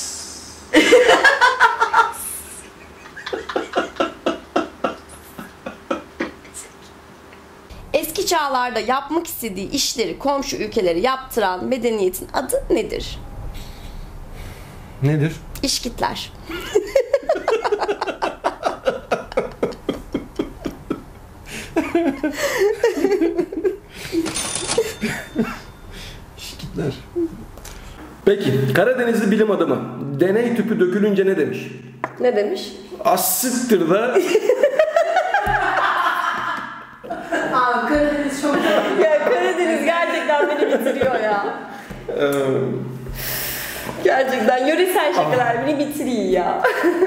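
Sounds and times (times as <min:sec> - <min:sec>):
woman laughing hard: 0:00.8 - 0:06.6, 0:16.5 - 0:24.2, 0:34.2 - 0:41.4, 0:46.6 - 0:47.0.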